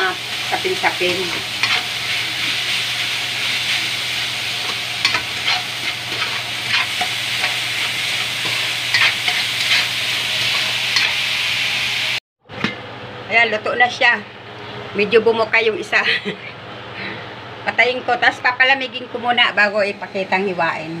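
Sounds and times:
steady sizzle: 0.0 - 12.2
metal spatula scraping a wok: 1.3 - 11.2.

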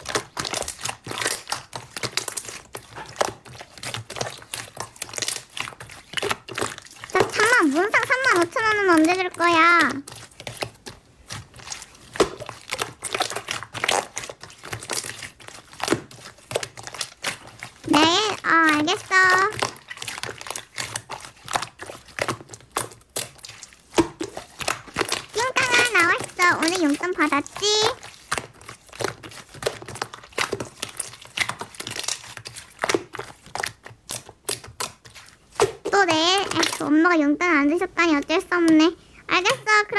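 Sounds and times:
slime sticky clicks and squelches: 0.0 - 39.9.

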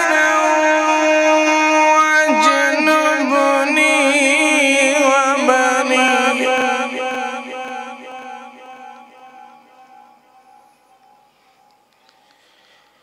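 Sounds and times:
man reciting melodically: 0.0 - 10.2.

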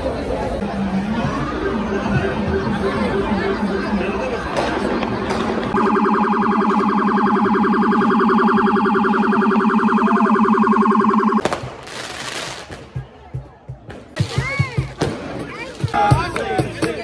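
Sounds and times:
pulsing electronic siren: 0.7 - 11.4.

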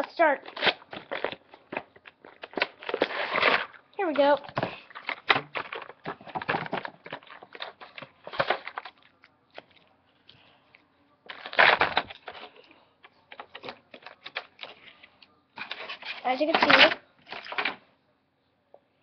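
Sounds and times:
packaging crackling and clicking: 0.4 - 9.7, 11.3 - 12.7, 13.3 - 14.8, 15.6 - 17.8
packaging crinkling: 0.4 - 9.7, 11.3 - 12.7, 15.6 - 17.8.

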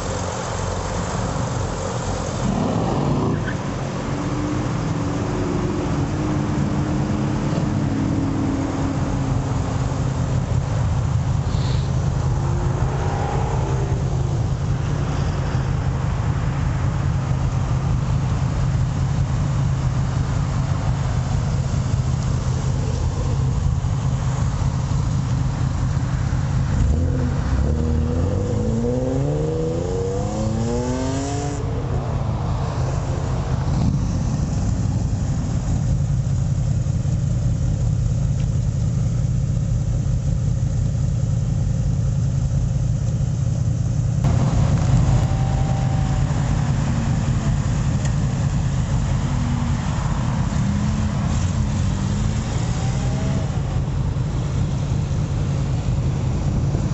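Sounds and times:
car engines rumbling: 0.0 - 56.9
engine revving up: 26.7 - 35.2, 44.2 - 53.9.

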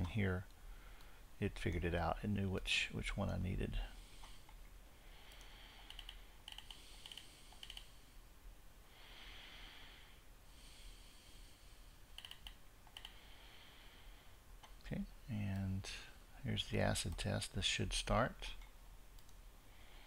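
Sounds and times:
soft hiss: 0.0 - 20.0
computer clicking: 5.3 - 7.9, 12.1 - 13.2, 18.6 - 19.4.

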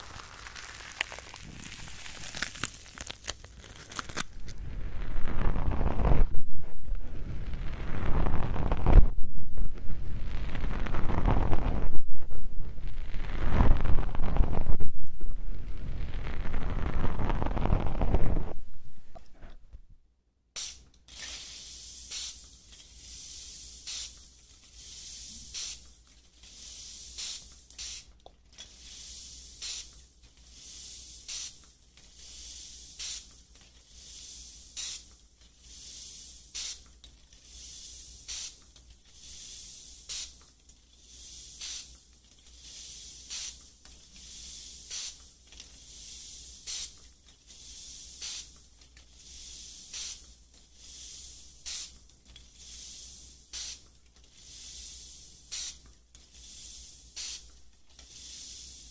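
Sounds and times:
soft hissing swish: 20.6 - 25.9, 28.7 - 53.8.

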